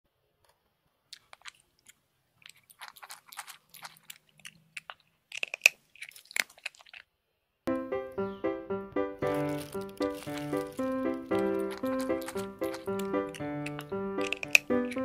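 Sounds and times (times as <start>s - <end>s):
hamster crunching treats: 1.1s - 7.1s, 9.2s - 15.0s.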